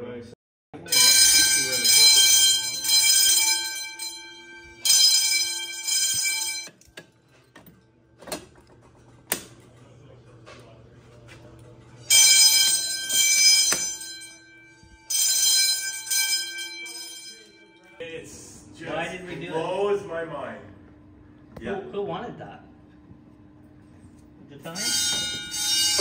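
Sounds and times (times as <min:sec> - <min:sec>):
fire alarm bells ringing: 0:00.8 - 0:07.4, 0:12.0 - 0:18.0, 0:24.6 - 0:26.0.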